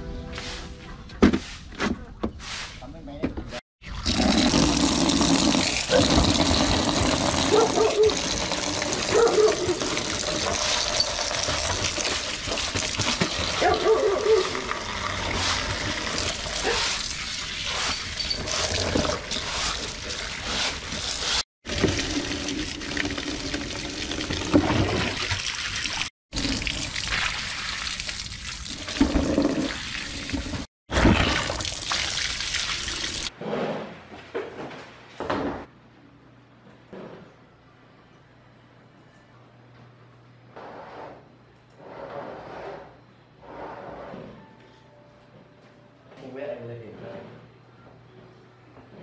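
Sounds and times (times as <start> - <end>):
water pouring into plastic pot: 3.8 - 13.7, 21.7 - 33.3
hands scrubbing plastic pot: 5.3 - 22.2.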